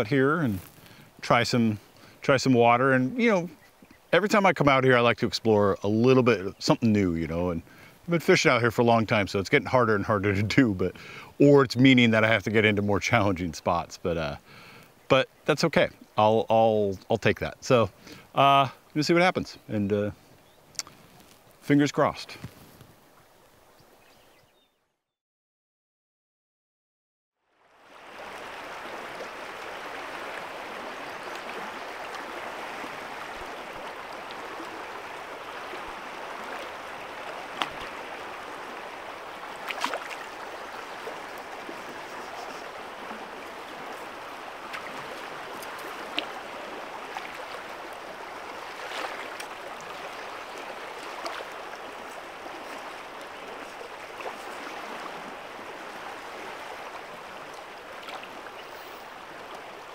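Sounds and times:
river water rushing: 0:27.5 - 0:59.9.

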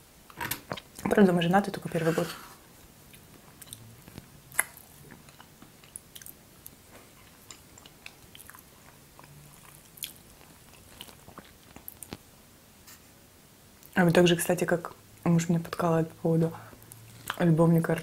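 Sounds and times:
chewing and mouth sounds: 0:03.1 - 0:12.2, 0:16.7 - 0:17.5.

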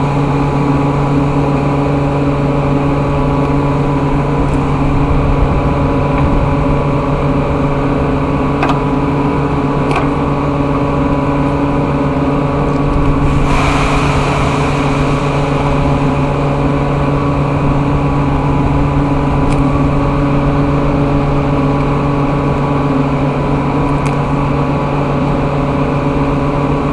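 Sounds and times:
air hiss: 0:13.1 - 0:20.7.

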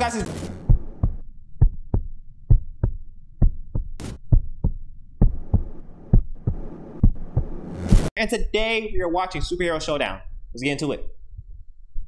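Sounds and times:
heartbeat thumps: 0:00.3 - 0:08.1, 0:11.3 - 0:12.0.

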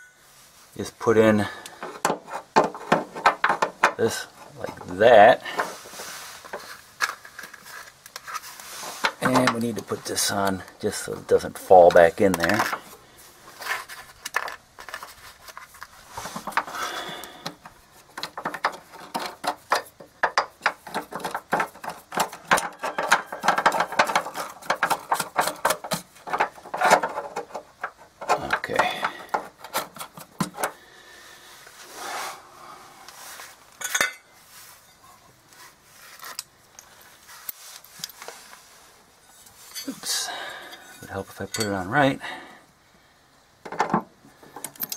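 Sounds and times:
metal bolt clicking and rattling: 0:01.8 - 0:04.0, 0:17.4 - 0:30.8, 0:44.6 - 0:44.9.

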